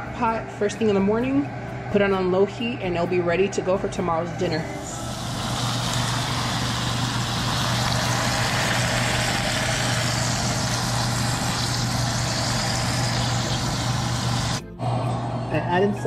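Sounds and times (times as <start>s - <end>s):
steady low hum: 0.0s - 16.0s
meat sizzling in hot oil: 5.0s - 14.6s.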